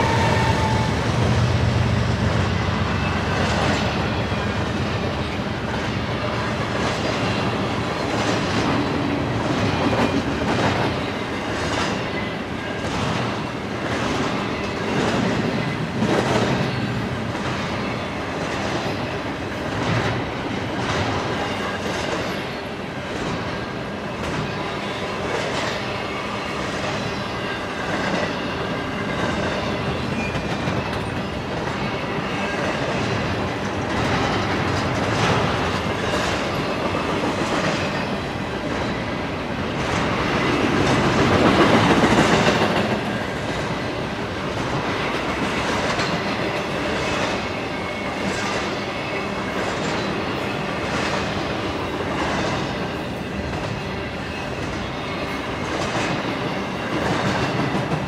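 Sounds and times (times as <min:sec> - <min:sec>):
steel wheels rumbling on rail: 0:00.0 - 0:58.0
wheels clacking over rail joints: 0:26.7 - 0:58.0.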